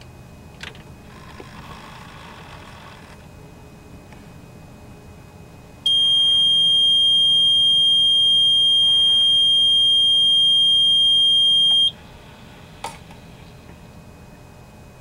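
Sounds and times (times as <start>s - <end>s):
high-pitched warning buzzer: 5.9s - 12.0s.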